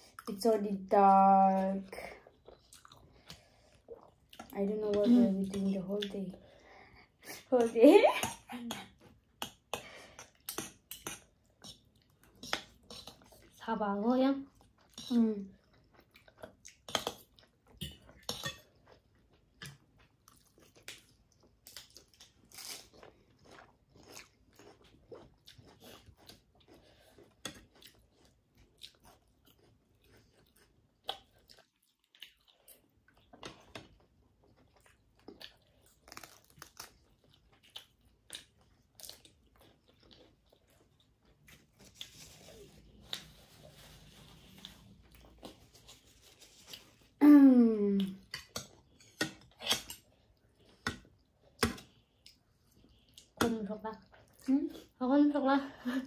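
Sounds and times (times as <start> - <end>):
chewing and biting food: 2.2 - 4.6, 14.4 - 47.2
paper tissue rustling: 41.8 - 44.8.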